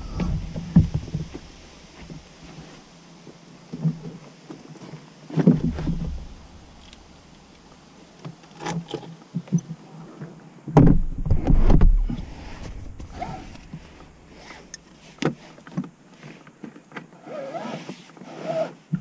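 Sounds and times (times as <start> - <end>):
low rumbling knocking: 5.5 - 7.8, 10.8 - 14.4
knocks and clunks in cockpit: 10.7 - 13.8.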